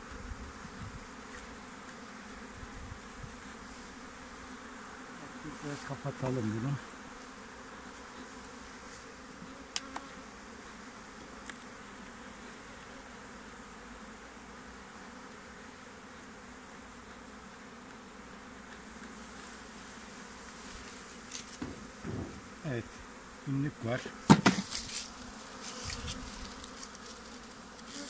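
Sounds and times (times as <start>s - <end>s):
bees buzzing: 0.0s - 28.0s
hive tool clicking on frames: 9.7s - 10.1s, 21.3s - 22.6s.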